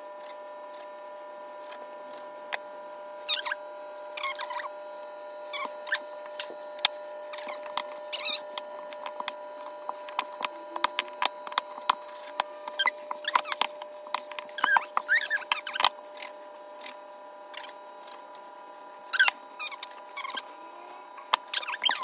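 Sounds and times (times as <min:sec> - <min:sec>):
steady background hum: 0:00.0 - 0:22.0
sharp clicks and short squeaks: 0:03.3 - 0:03.6, 0:04.2 - 0:04.7, 0:05.5 - 0:09.4, 0:10.0 - 0:18.2, 0:19.1 - 0:20.5, 0:21.3 - 0:22.0.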